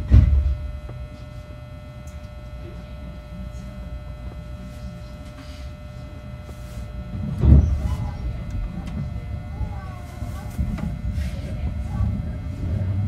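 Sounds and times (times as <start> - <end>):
heavy thump: 0.0 - 0.6
steady electrical hum: 0.0 - 13.0
train low rumble: 0.0 - 13.0.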